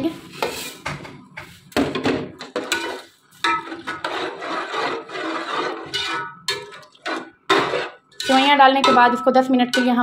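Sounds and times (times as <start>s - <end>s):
metal spatula scraping pot: 2.4s - 10.0s.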